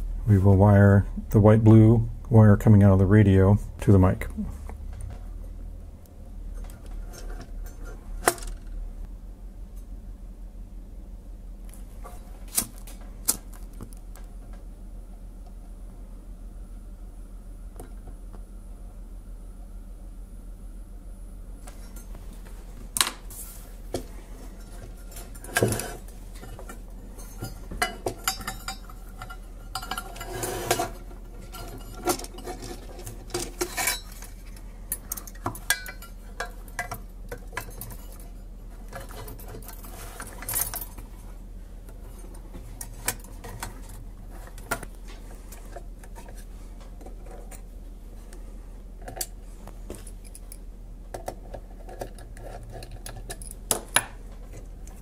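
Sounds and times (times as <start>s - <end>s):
steady low hum: 0.0s - 55.0s
metal parts clinking and clicking: 24.6s - 38.3s, 38.9s - 41.0s, 51.2s - 55.0s.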